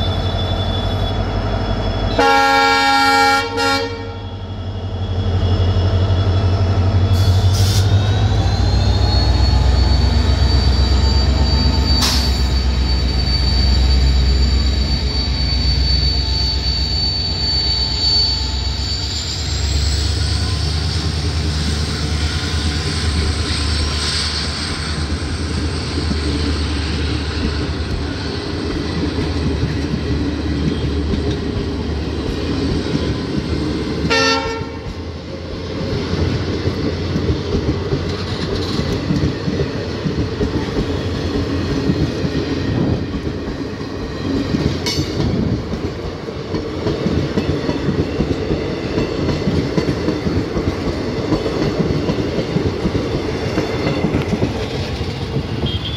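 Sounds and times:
train coaches rumbling: 0:00.0 - 0:55.9
train horn: 0:02.1 - 0:04.4, 0:34.1 - 0:35.0, 0:55.6 - 0:55.9.

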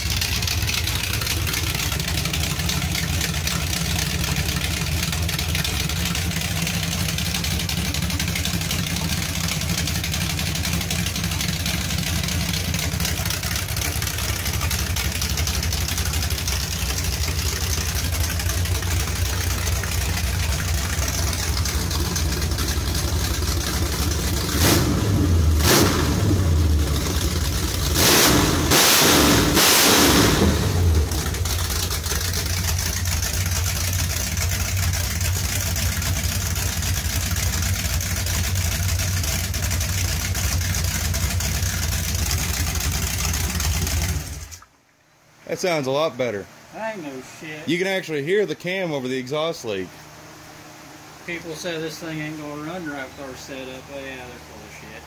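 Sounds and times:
engine idling with open headers: 0:00.0 - 0:44.7, 0:45.6 - 0:55.0
engine revving: 0:00.9 - 0:33.6.

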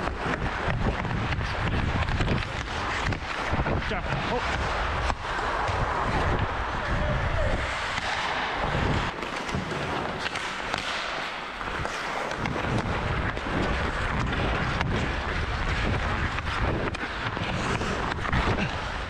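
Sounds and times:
wind rushing over microphone: 0:00.0 - 0:10.2, 0:11.6 - 0:19.0
ice skate blades scraping: 0:00.0 - 0:19.0
hockey stick clicking puck: 0:07.7 - 0:18.6.

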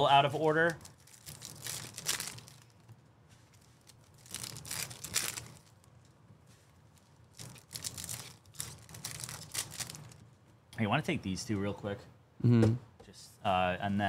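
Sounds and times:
wrappers tearing and crinkling: 0:00.0 - 0:06.2, 0:06.8 - 0:10.3.

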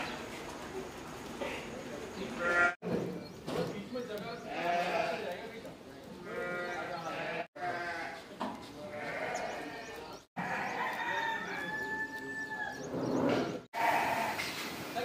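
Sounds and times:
goats bleating: 0:04.4 - 0:05.5, 0:06.1 - 0:11.2, 0:13.8 - 0:14.4.

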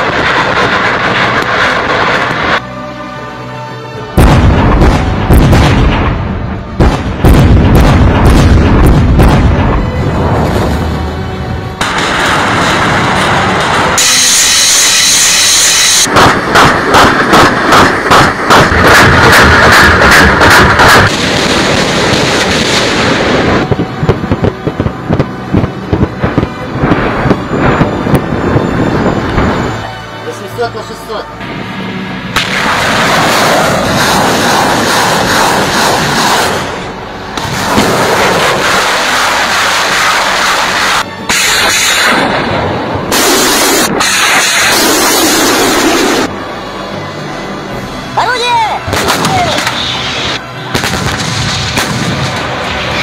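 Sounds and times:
large explosions: 0:00.0 - 0:02.6, 0:04.2 - 0:30.2, 0:31.4 - 0:46.4, 0:48.8 - 0:53.0
rumbling: 0:04.2 - 0:30.2, 0:31.4 - 0:46.4
rushing roar: 0:31.4 - 0:46.5.

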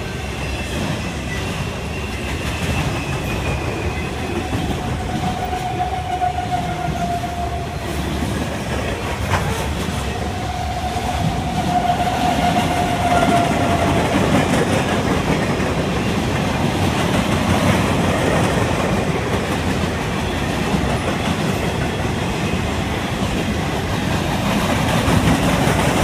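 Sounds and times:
freight train wheels rumbling: 0:00.0 - 0:26.0
wheel squeal: 0:00.2 - 0:07.3.

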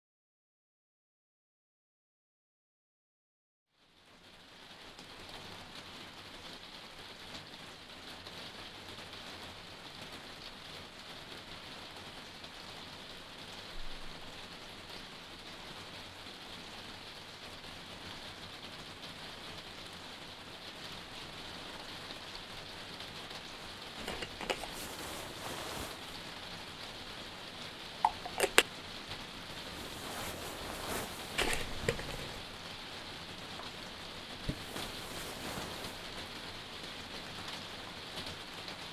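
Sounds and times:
steady rain hiss: 0:03.8 - 0:38.9
sharp clicks and knocks: 0:24.0 - 0:25.0, 0:28.1 - 0:28.6, 0:30.2 - 0:32.4.

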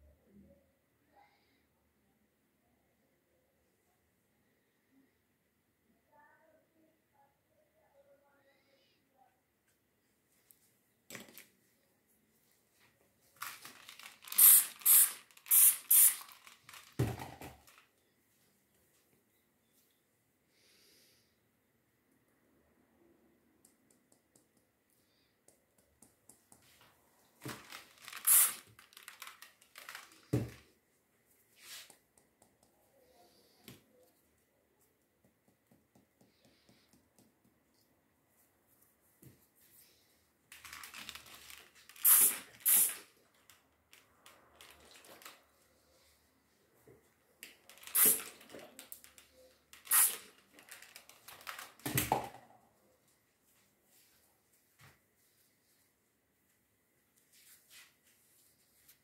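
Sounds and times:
rustling and crinkling handling: 0:10.3 - 0:15.5, 0:16.2 - 0:19.2, 0:26.7 - 0:31.9, 0:37.7 - 0:42.6, 0:46.8 - 0:52.1
spray bottle hissing squirts: 0:14.0 - 0:16.8, 0:27.8 - 0:28.7, 0:42.0 - 0:43.1, 0:47.7 - 0:48.5, 0:49.8 - 0:50.3.

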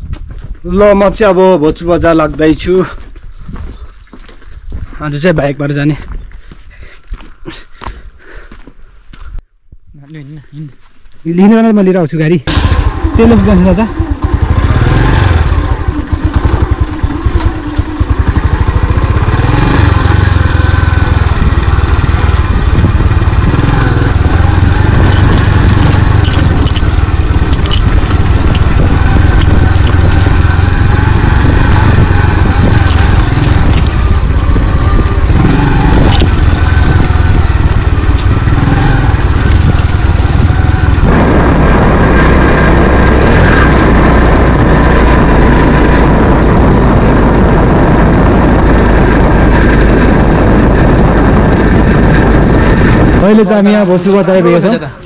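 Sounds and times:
motorcycle engine running: 0:12.4 - 0:55.0
sharp knocks and rattles: 0:24.1 - 0:34.3.

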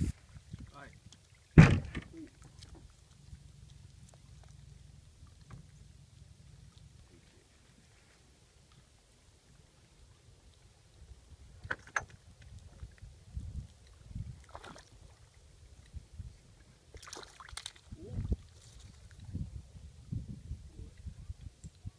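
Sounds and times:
lake water lapping: 0:00.0 - 0:11.6, 0:12.2 - 0:19.4
water splashes: 0:00.0 - 0:19.4
knocks: 0:01.6 - 0:02.1.

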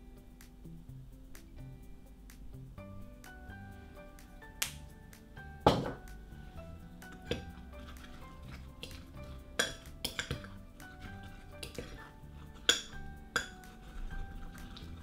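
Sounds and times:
soft background music: 0:00.0 - 0:15.0
fork stirring batter in mug: 0:06.4 - 0:15.0
fork clinking against glass: 0:09.6 - 0:13.8.

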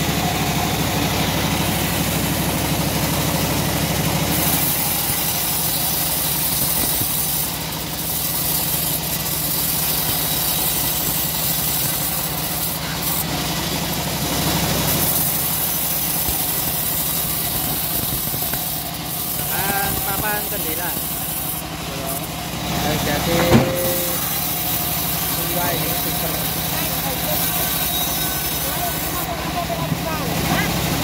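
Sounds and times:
bandsaw blade sawing log: 0:00.0 - 0:31.0
motor droning: 0:00.0 - 0:31.0.

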